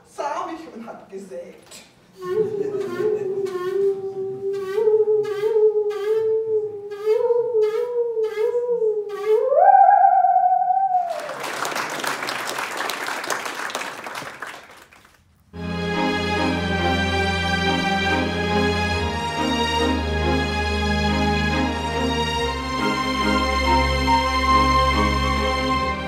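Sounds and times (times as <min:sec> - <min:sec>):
bowed musical saw melody: 0:02.2 - 0:11.0, 0:15.8 - 0:26.0
applause: 0:11.0 - 0:15.4.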